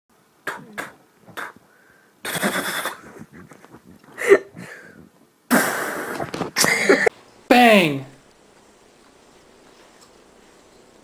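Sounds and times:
person imitating gunshots with mouth: 0:00.4 - 0:01.6, 0:02.2 - 0:03.5, 0:05.5 - 0:06.7.

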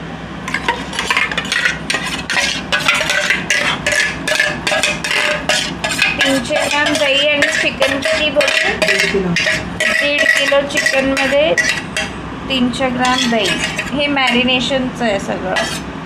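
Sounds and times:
spoon clinking on steel bowl: 0:00.5 - 0:12.1.

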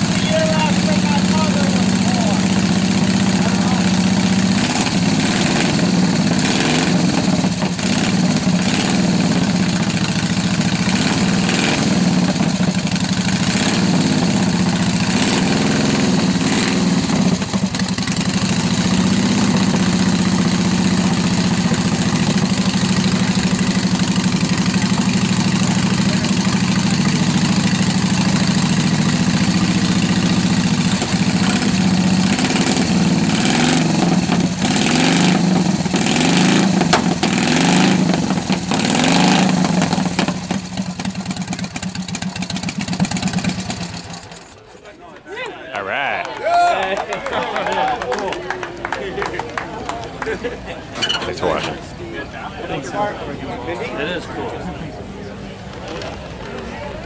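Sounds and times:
motorcycle engine idling: 0:00.0 - 0:44.6.

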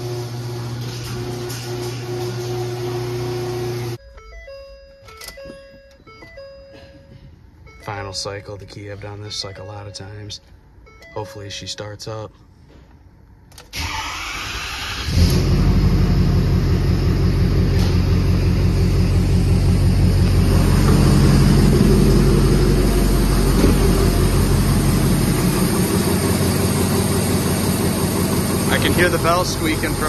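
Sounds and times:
diesel engine cranking: 0:13.5 - 0:30.0
diesel engine idling: 0:14.0 - 0:30.0.

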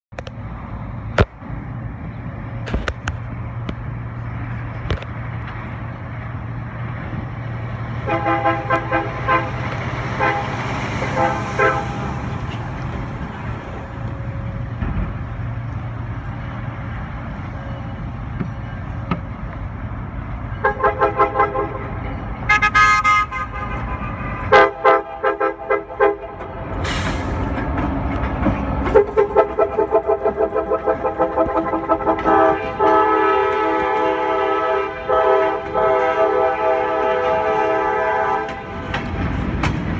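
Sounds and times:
diesel engine rumble: 0:00.1 - 0:39.9
locomotive air horn toots: 0:07.9 - 0:12.6, 0:20.5 - 0:27.4, 0:28.8 - 0:39.1.

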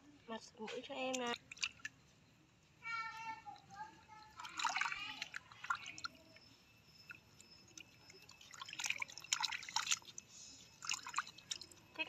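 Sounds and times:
water splashing in basin: 0:01.0 - 0:02.0, 0:04.2 - 0:06.3, 0:07.0 - 0:10.2, 0:10.8 - 0:12.0.

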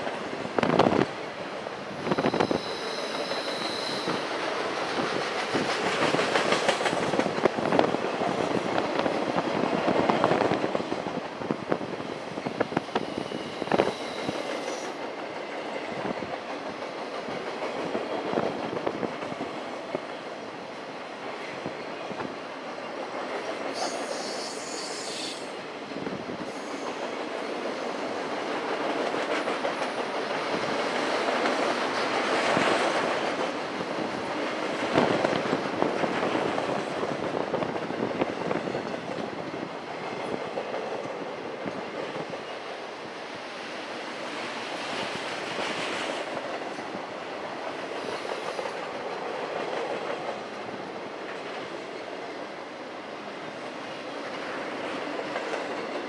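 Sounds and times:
wind noise on microphone: 0:00.0 - 0:15.0, 0:15.8 - 0:20.1, 0:25.8 - 0:26.8, 0:30.2 - 0:43.3
train wheels clacking: 0:02.0 - 0:11.1, 0:12.6 - 0:20.7, 0:21.8 - 0:25.6, 0:26.5 - 0:39.3, 0:47.6 - 0:50.6.

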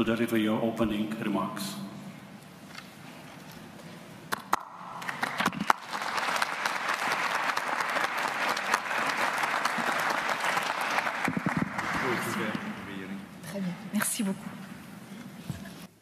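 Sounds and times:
audience applauding: 0:04.5 - 0:13.1.

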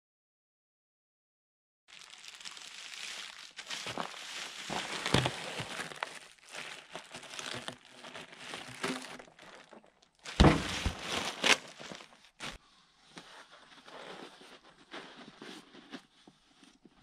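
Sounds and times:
plastic wrapping crinkling: 0:01.9 - 0:12.6
heavy thump: 0:10.4 - 0:11.1.

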